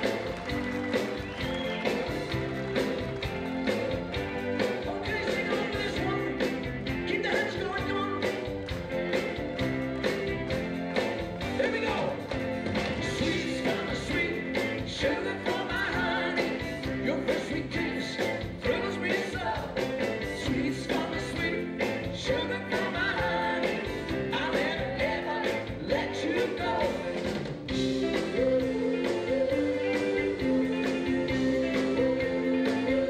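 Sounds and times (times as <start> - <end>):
rock and roll band playing: 0.0 - 33.0
man singing into microphone: 4.9 - 6.4.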